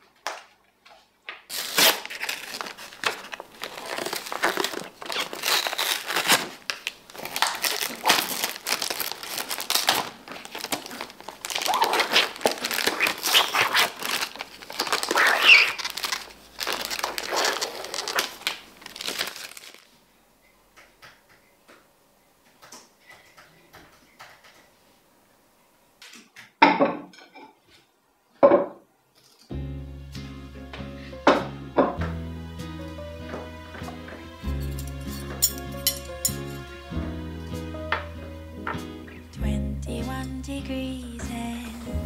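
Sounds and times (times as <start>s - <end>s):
plastic packaging crinkling: 1.5s - 20.1s
plates clattering on a table: 26.2s - 27.6s, 28.4s - 28.8s.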